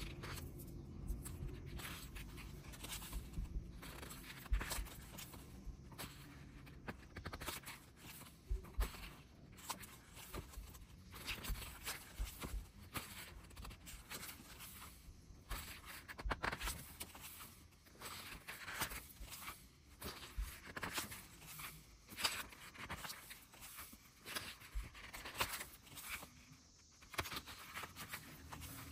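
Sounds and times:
book pages turning: 0.0 - 28.9
fingernails tapping pages: 1.1 - 14.8.

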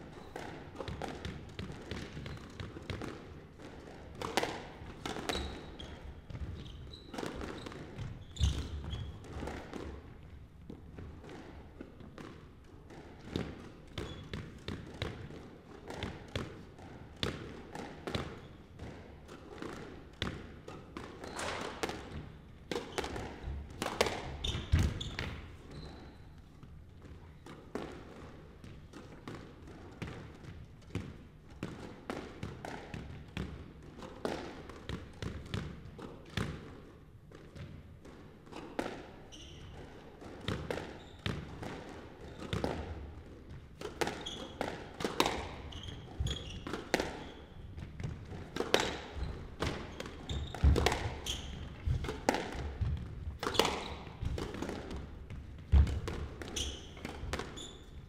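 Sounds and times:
squash ball hits: 0.3 - 25.6, 27.0 - 57.9
shoes squeaking on wooden floor: 5.3 - 9.2, 24.3 - 26.3, 44.2 - 44.6, 45.3 - 47.8, 49.0 - 52.0, 56.5 - 58.0.

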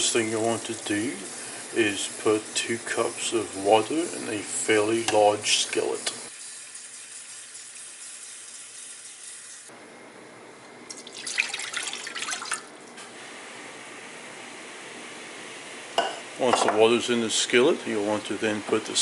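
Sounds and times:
faucet running into cup: 0.0 - 9.7, 10.9 - 12.7
water splashing into skillet: 10.9 - 12.7.

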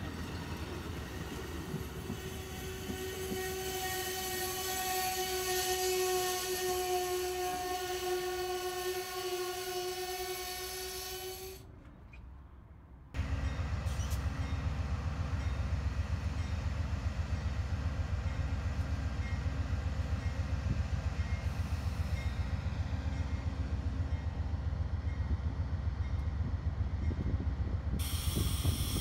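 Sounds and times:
passenger train rolling past: 0.0 - 29.0
diesel locomotive rumble: 13.2 - 29.0.

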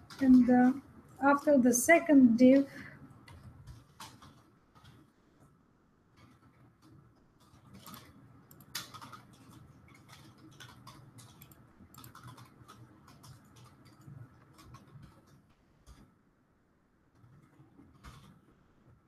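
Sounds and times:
keyboard typing clicks: 3.2 - 5.1, 6.1 - 16.1, 17.2 - 18.5.

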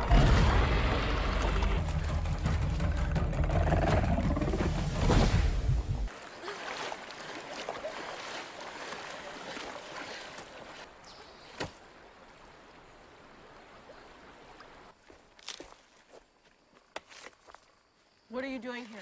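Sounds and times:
deep rumble: 0.0 - 6.1
water splashing: 4.5 - 14.9.

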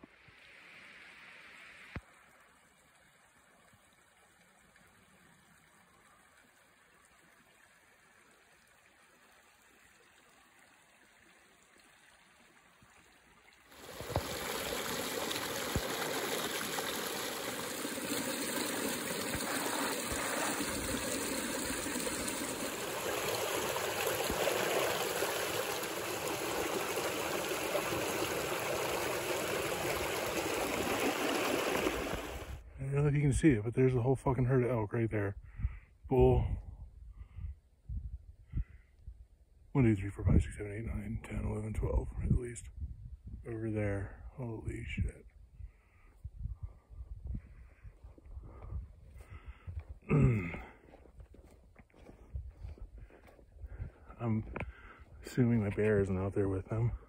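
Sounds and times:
creek splashing over stones: 1.8 - 32.6.

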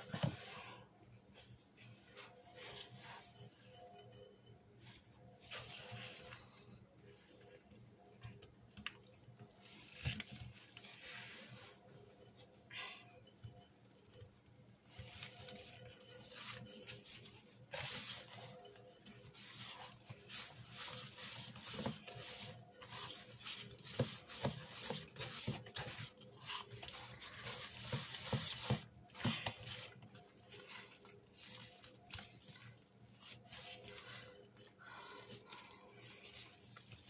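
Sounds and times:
sponge squishing wet powder: 0.0 - 37.0.

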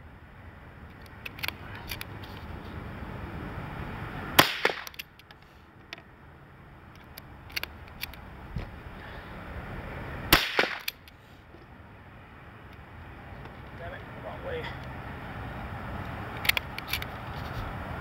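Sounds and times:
rifle bolt clicks: 0.9 - 2.1, 4.6 - 6.0
rifle shots with echo: 10.3 - 10.9.

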